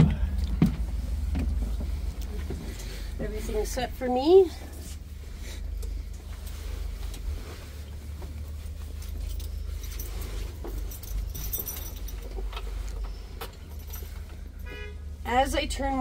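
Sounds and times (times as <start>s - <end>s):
low steady hum: 0.0s - 16.0s
keys jangling and clicking: 8.9s - 14.6s.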